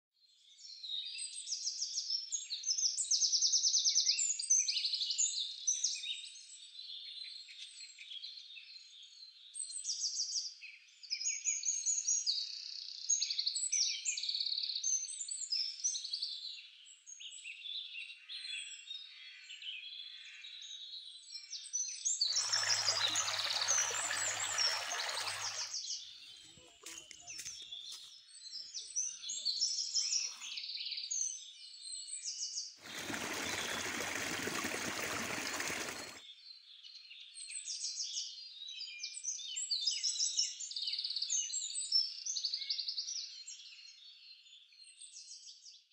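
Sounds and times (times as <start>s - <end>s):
small birds chirping: 22.2s - 31.8s, 32.8s - 37.6s
rushing splashing water: 22.3s - 25.8s, 32.8s - 36.2s.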